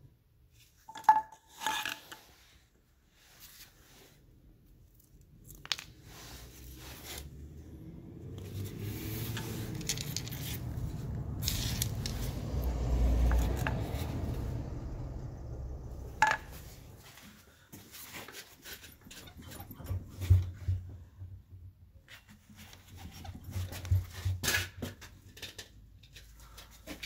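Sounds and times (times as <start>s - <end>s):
handling tools and metal parts: 0.6s - 2.6s, 8.3s - 12.6s, 13.2s - 14.5s, 15.9s - 20.9s, 22.0s - 27.0s
low rumble: 6.8s - 17.1s.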